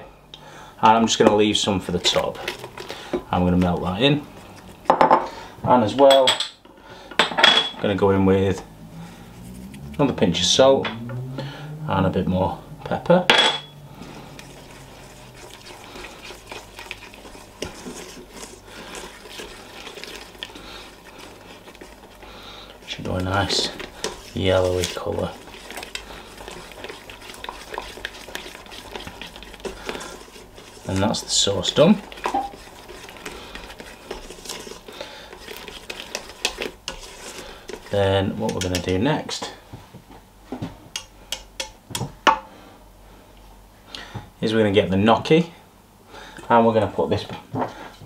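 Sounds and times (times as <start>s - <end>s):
whisk swishing in sauce: 0.8s - 5.7s, 8.7s - 10.7s, 13.8s - 39.6s
whisk clicking and scraping pot: 0.8s - 6.3s, 8.1s - 10.8s, 13.7s - 39.6s, 40.9s - 42.2s.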